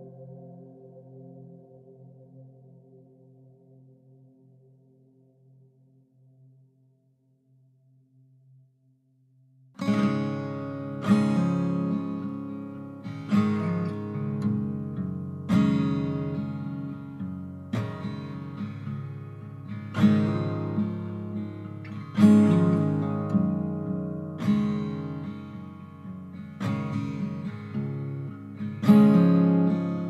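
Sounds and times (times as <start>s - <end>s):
acoustic guitar chords strummed: 9.8s - 30.0s.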